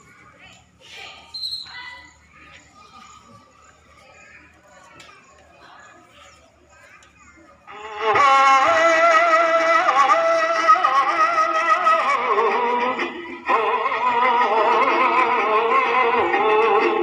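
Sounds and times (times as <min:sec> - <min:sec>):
person singing song: 0:07.7 - 0:17.0.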